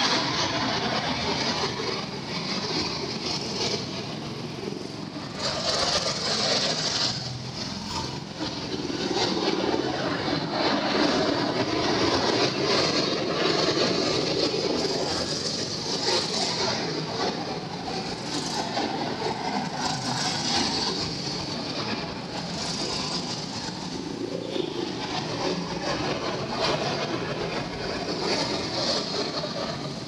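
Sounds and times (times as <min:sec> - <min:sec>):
go-kart engines running: 0:00.0 - 0:30.0.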